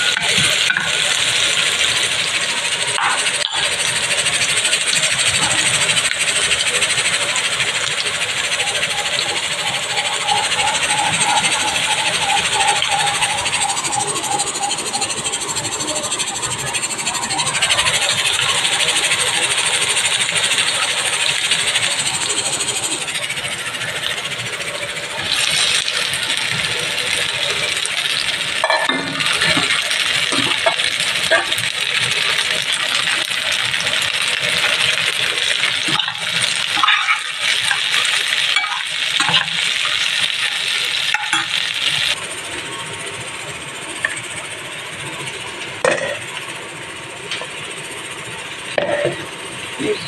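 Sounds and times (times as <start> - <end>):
okra sizzling in a pan: 0.0 - 14.6, 17.0 - 42.2.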